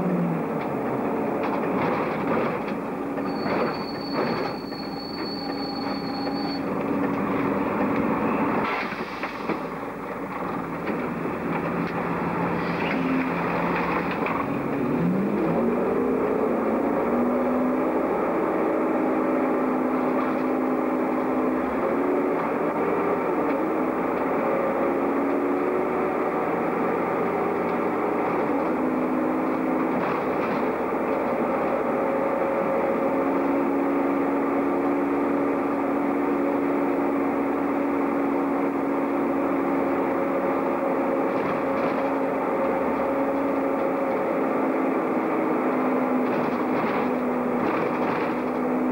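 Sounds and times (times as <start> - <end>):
bus engine running: 0.0 - 48.9
transmission whine: 2.7 - 8.7.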